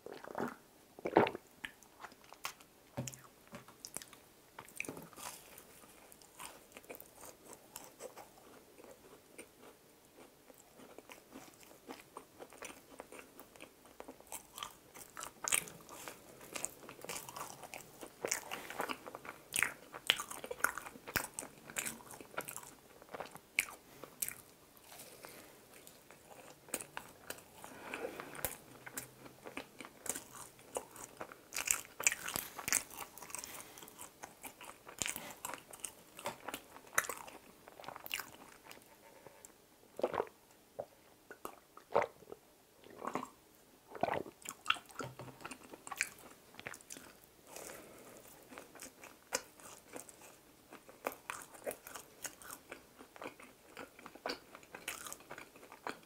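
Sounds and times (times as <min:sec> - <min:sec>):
eating with crunchy bites: 0:00.0 - 0:40.4, 0:42.9 - 0:56.0
wet mouth sounds: 0:42.9 - 0:47.7.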